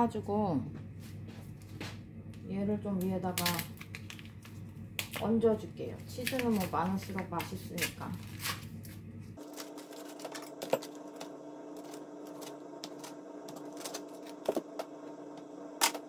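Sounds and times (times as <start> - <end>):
steady hum: 0.0 - 16.0
foil wrapper crinkling: 3.2 - 5.3, 6.0 - 14.7.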